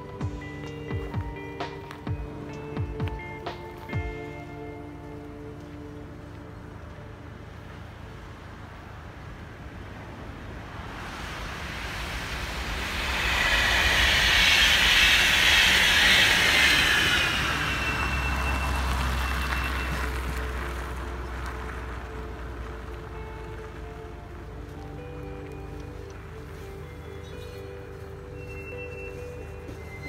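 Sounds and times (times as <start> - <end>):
freight train rumbling: 8.8 - 23.6
wheel and road hiss: 9.9 - 21.7
car driving past: 10.2 - 22.2
high wheel squeal: 11.6 - 20.7, 27.2 - 30.0.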